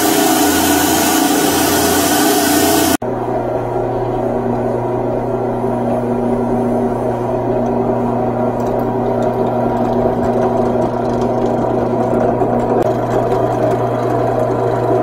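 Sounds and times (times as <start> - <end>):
drill press motor humming: 0.0 - 3.0, 7.0 - 15.0.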